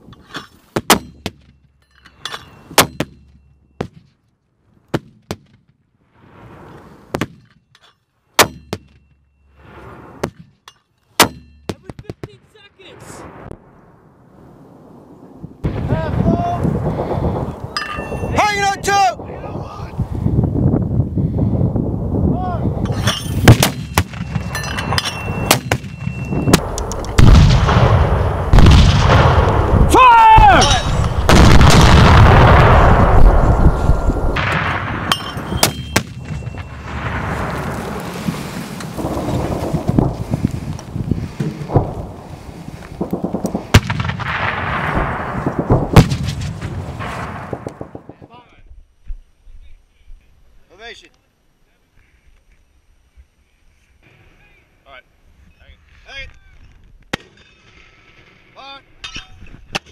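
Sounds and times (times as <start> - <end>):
mortar firing: 0.7 - 1.5, 8.4 - 9.0, 11.2 - 12.3, 22.9 - 48.3.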